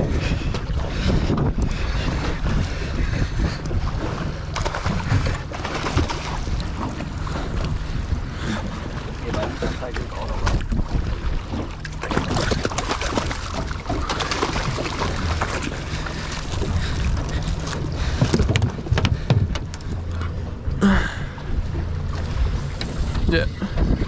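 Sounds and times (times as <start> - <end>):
water splashing: 0.0 - 20.3
boat engine humming: 0.0 - 24.0
waves knocking on hull: 0.0 - 24.0
wind buffeting microphone: 0.0 - 24.0
rush of water: 3.9 - 20.2.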